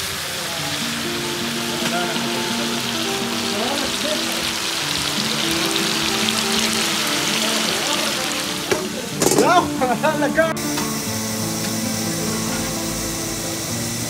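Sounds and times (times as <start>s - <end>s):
food sizzling in oil: 0.0s - 14.0s
background music: 0.6s - 14.0s.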